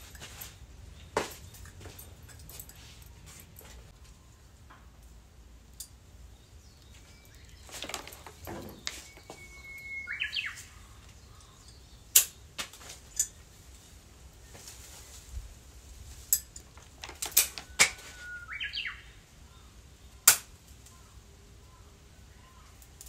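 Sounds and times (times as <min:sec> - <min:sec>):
bird singing whistled song: 0:08.9 - 0:12.0, 0:17.7 - 0:19.2.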